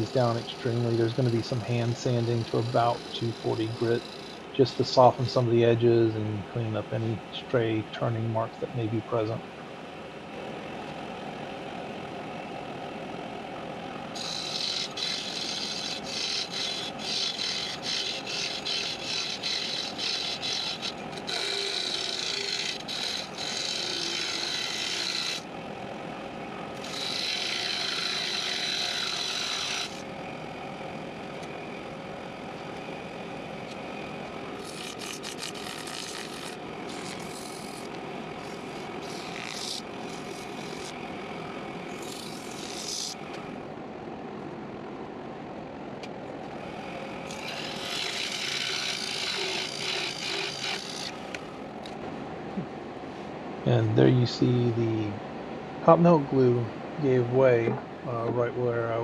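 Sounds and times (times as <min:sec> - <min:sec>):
wood lathe running: 0:00.0 - 0:05.1, 0:14.1 - 0:25.5, 0:26.7 - 0:30.2, 0:31.0 - 0:43.6, 0:46.5 - 0:51.9
parting tool scraping wood: 0:14.2 - 0:25.4, 0:34.6 - 0:41.0.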